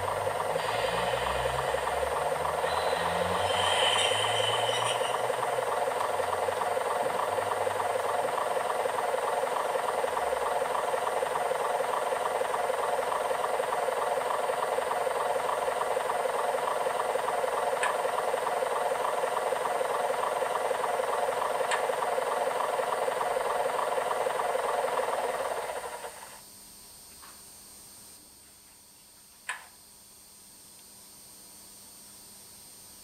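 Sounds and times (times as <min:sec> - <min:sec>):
model diesel engine sound: 0:00.0 - 0:26.4.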